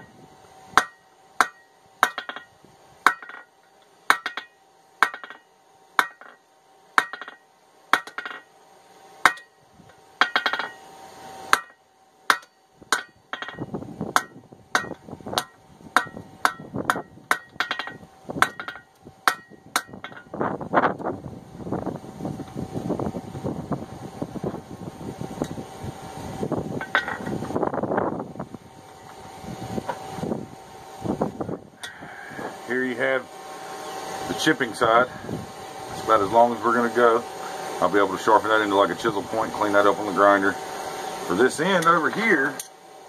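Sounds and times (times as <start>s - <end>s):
hammer ringing on anvil: 0.8s - 2.5s, 14.2s - 20.3s.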